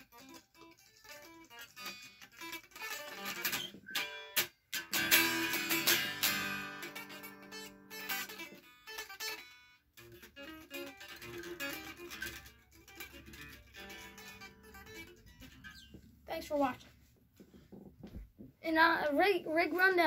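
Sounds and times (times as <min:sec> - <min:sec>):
electric guitar chord ringing: 0:00.0 - 0:15.6
picked electric guitar notes: 0:00.0 - 0:16.0.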